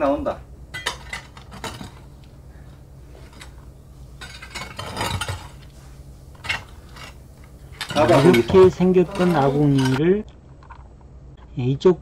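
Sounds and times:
low steady hum: 0:00.0 - 0:12.0
hard objects clinking on metal: 0:00.7 - 0:02.2, 0:03.2 - 0:05.7, 0:06.3 - 0:10.0.

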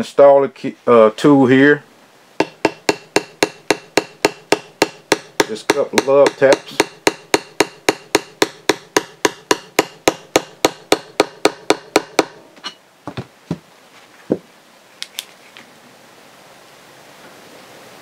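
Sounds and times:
hammer tapping metal tool: 0:02.4 - 0:12.8.

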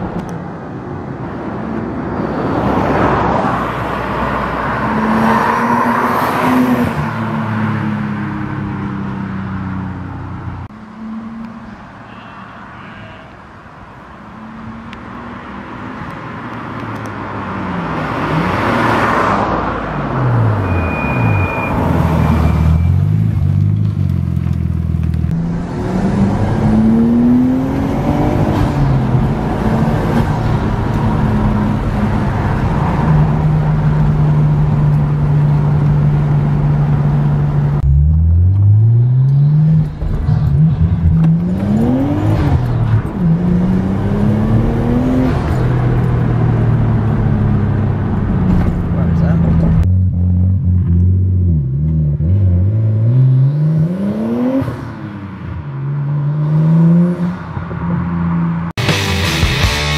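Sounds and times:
car engine accelerating through gears: 0:21.7 - 0:57.6.

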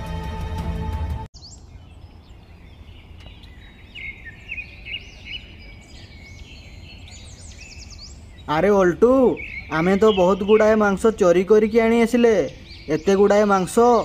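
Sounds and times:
background music: 0:00.0 - 0:01.3
birds chirping: 0:01.4 - 0:14.0.

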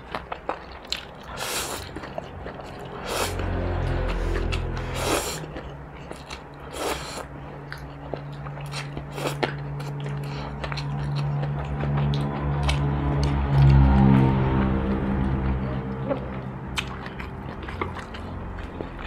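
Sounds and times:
chewing and mouth clicks: 0:00.0 - 0:14.2, 0:15.2 - 0:19.0
noodles slurping: 0:01.2 - 0:07.3.

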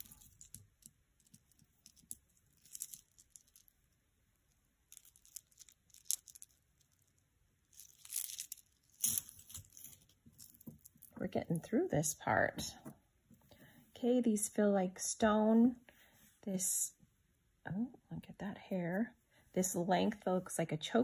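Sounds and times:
metal chain clinking: 0:00.0 - 0:03.6
necklace rustling onto cloth: 0:00.0 - 0:04.0, 0:04.9 - 0:12.0.

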